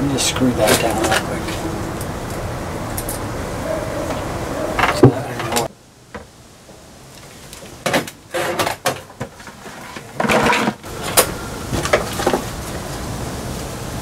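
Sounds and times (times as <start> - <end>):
handling knocks and scrapes: 7.6 - 12.6
plastic bucket shifted: 7.8 - 12.6.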